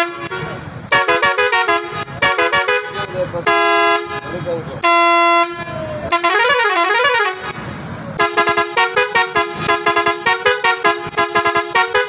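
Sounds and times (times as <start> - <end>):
truck horn melody: 0.0 - 12.0.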